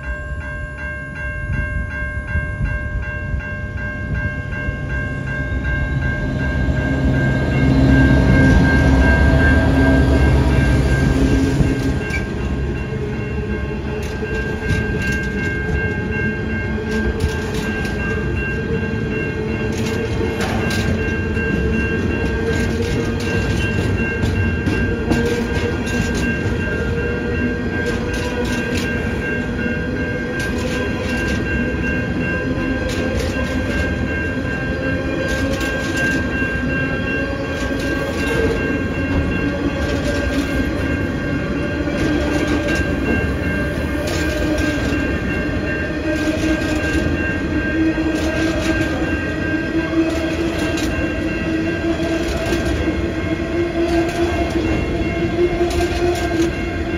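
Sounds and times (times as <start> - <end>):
train rumble: 0.0 - 56.9
train wheels clicking over rail joints: 13.6 - 53.2, 53.8 - 56.9.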